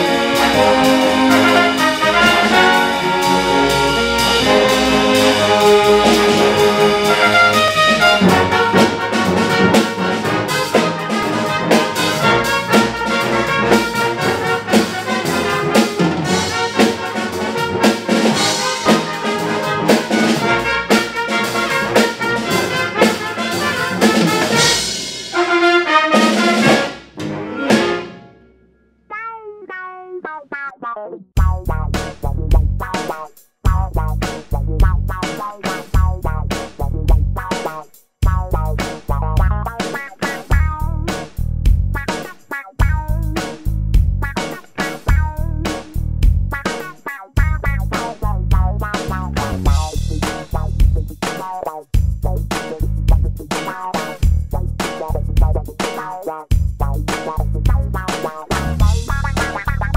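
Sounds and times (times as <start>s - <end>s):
big band playing jazz: 0.0s - 28.3s, 31.4s - 59.9s
trombones: 0.0s - 28.6s.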